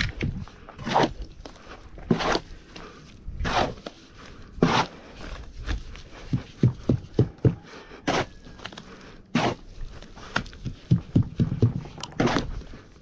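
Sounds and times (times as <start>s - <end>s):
hoe scraping wet cement: 0.0s - 13.0s.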